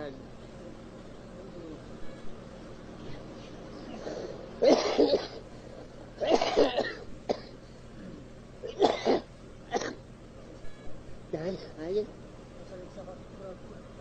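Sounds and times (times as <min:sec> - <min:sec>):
person coughing: 0:03.9 - 0:05.4, 0:06.2 - 0:08.1, 0:08.7 - 0:10.0.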